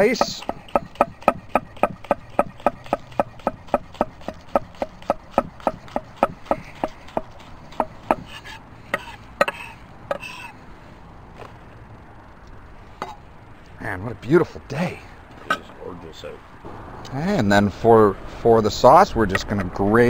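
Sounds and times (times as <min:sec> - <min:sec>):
knife chopping on wooden board: 0:00.2 - 0:09.6.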